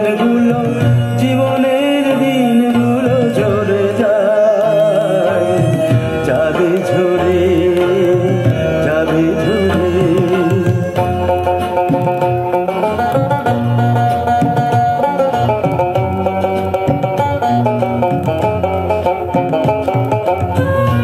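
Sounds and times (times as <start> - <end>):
man singing: 0.0 - 11.4
tabla and instruments: 0.0 - 21.0.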